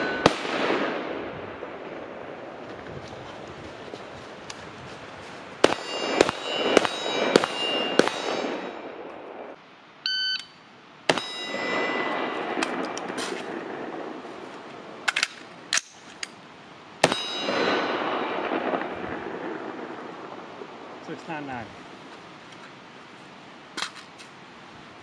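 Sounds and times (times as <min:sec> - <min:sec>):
steel target ringing: 0:00.0 - 0:00.6, 0:05.6 - 0:09.0, 0:11.1 - 0:12.8, 0:17.0 - 0:18.8
rifle shots: 0:00.0 - 0:01.9, 0:05.6 - 0:09.5, 0:11.1 - 0:14.2, 0:17.0 - 0:19.4
short electronic beep: 0:10.0 - 0:10.6.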